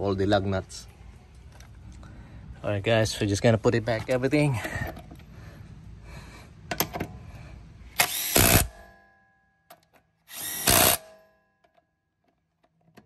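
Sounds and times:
power tool spinning lug nuts: 0:08.0 - 0:08.8, 0:10.3 - 0:11.1.

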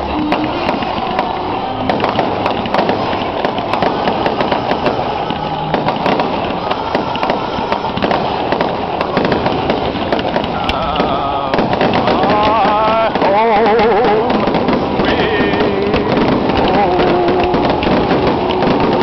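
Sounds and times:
fireworks crackling: 0:00.0 - 0:19.0.

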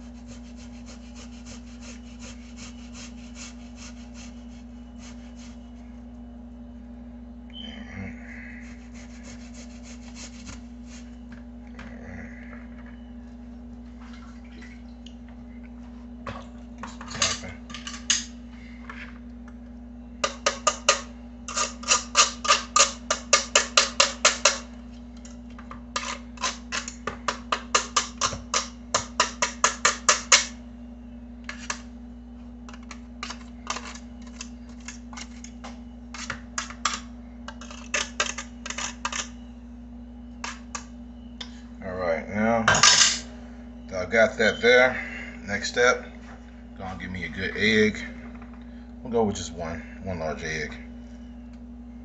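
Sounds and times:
potato grated on metal grater: 0:00.0 - 0:05.6, 0:08.7 - 0:11.0
steady low hum: 0:00.0 - 0:52.0.

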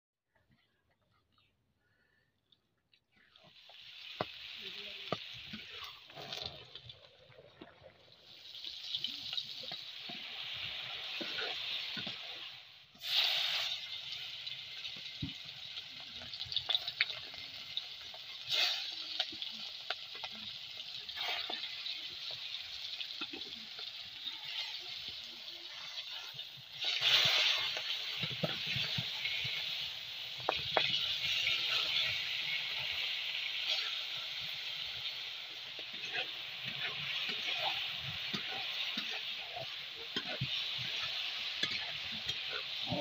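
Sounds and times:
hot oil sizzling in a wok: 0:03.3 - 0:43.0
vegetables stirred in a wok: 0:08.3 - 0:43.0.

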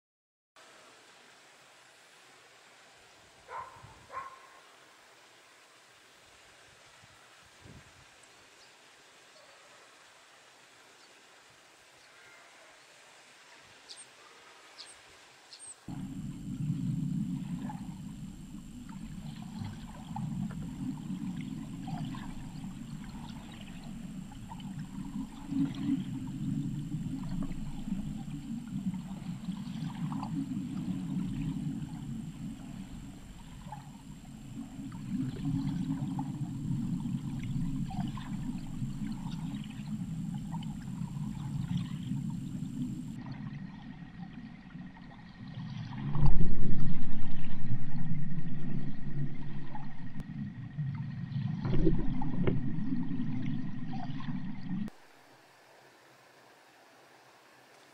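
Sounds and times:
underwater rumble: 0:15.9 - 0:55.0.

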